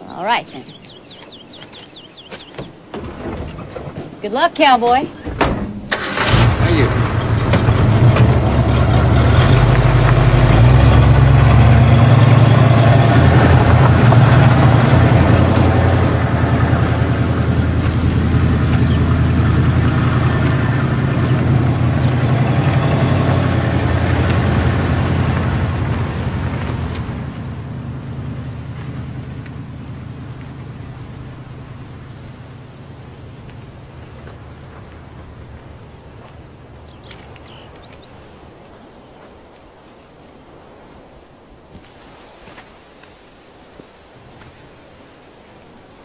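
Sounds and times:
pickup truck engine pulling away: 0:05.3 - 0:37.0.

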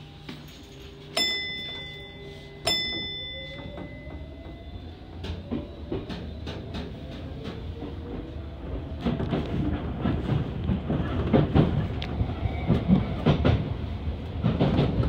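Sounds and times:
train motor whine: 0:00.0 - 0:08.2
bell strikes: 0:00.3 - 0:04.3.

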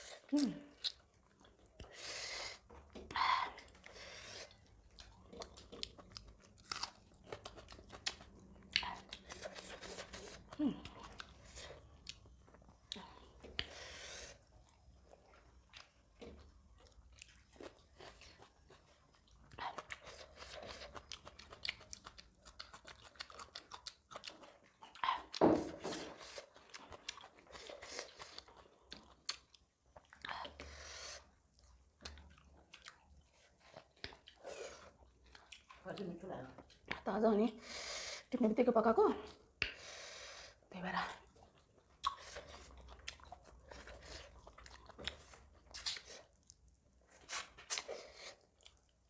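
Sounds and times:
people chewing and biting food: 0:00.0 - 0:37.0, 0:41.2 - 0:49.0
wet mouth clicks and smacks: 0:39.6 - 0:39.8, 0:45.7 - 0:46.6.

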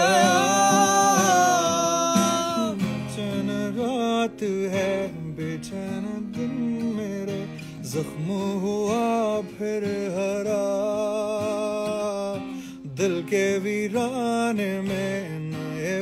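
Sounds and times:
man singing sliding notes: 0:00.0 - 0:11.8
strummed acoustic guitar: 0:00.0 - 0:16.0.

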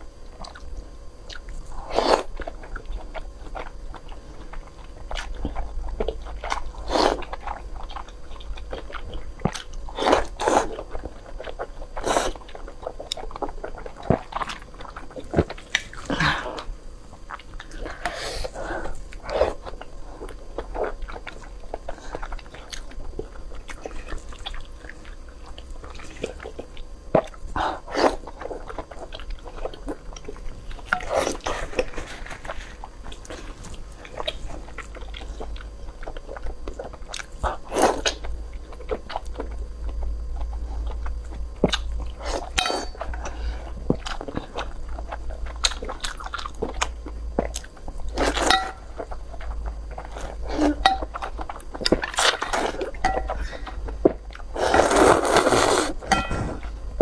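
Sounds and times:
wet chewing: 0:00.4 - 0:57.0
slurping noodles: 0:54.6 - 0:56.6.

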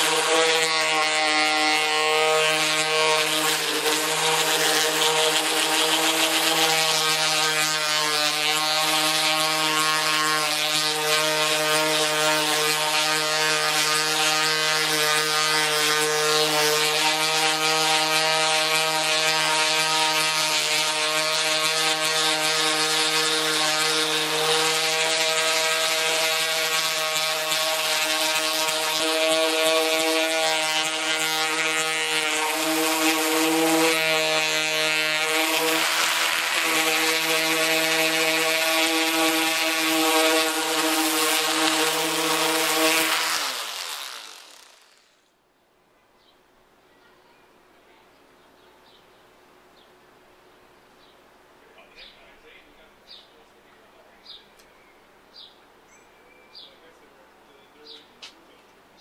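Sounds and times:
sanding disc hissing on metal: 0:00.0 - 0:45.1
orbital sander motor hum: 0:00.0 - 0:45.4.

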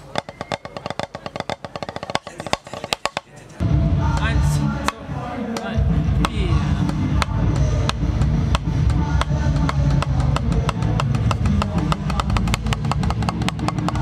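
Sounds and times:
drumsticks on rubber practice pad: 0:00.0 - 0:03.4, 0:04.2 - 0:14.0
low rumble: 0:03.6 - 0:14.0.

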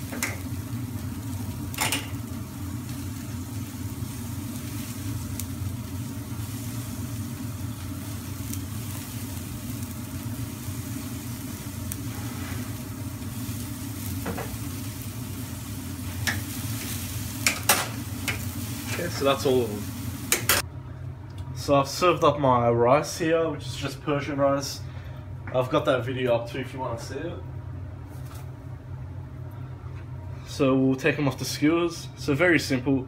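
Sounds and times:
kebabs sizzling on grill: 0:00.0 - 0:20.7.

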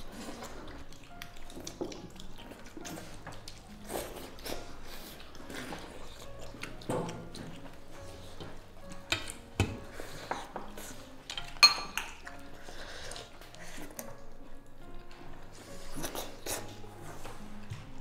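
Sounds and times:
soft background music: 0:00.0 - 0:18.0
chopsticks clinking on porcelain bowls: 0:08.9 - 0:12.5.

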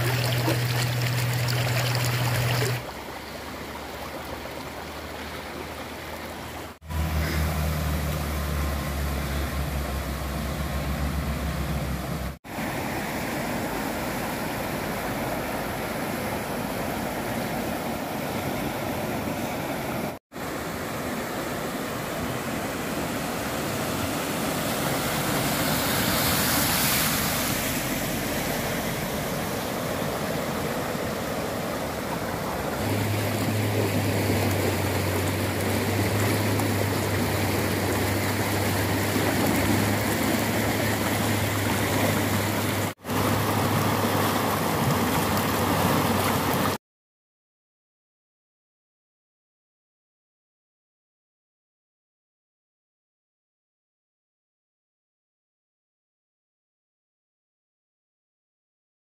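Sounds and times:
car driving through water: 0:00.0 - 0:46.8
floodwater rushing: 0:00.0 - 0:46.8.

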